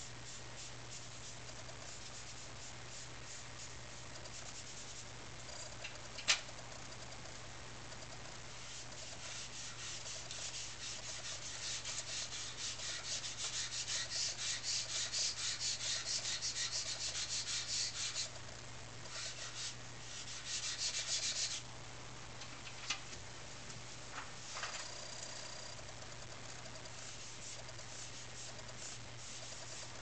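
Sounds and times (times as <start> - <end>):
charcoal scratching on paper: 0.0 - 5.1, 8.5 - 18.4, 19.0 - 21.6, 26.8 - 30.0.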